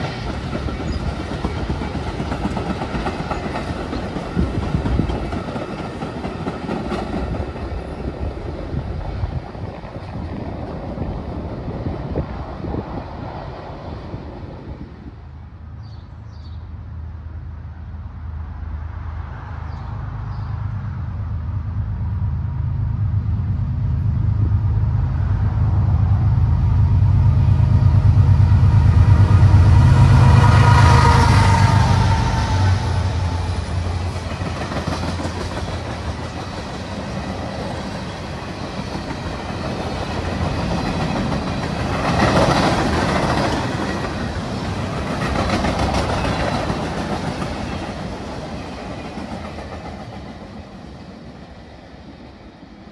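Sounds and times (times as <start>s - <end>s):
train wheels clacking on rails: 0.0s - 11.5s, 27.8s - 51.3s
locomotive engine rumble: 20.0s - 50.4s.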